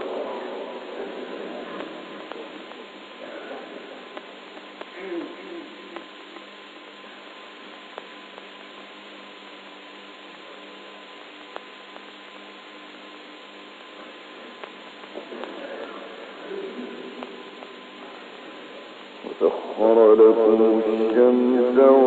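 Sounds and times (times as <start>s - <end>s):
faint steady tone: 0.0s - 22.0s
recording hiss and hum: 0.0s - 22.0s
faint clicks: 1.6s - 5.3s, 5.9s - 6.6s, 7.7s - 8.9s, 11.1s - 16.0s, 17.0s - 19.4s.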